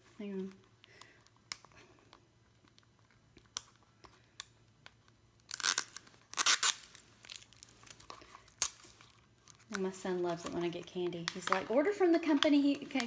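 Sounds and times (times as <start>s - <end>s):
fingernail clicking on plastic wrap: 0.8s - 9.9s
plastic wrap crinkling and tearing: 5.4s - 13.0s.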